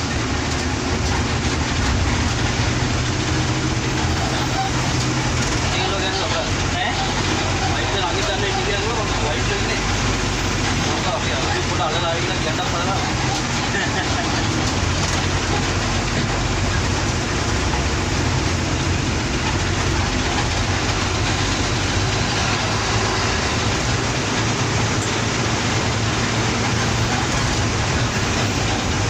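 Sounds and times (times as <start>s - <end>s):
bus engine running: 0.0s - 29.0s
road and cabin noise: 0.0s - 29.0s.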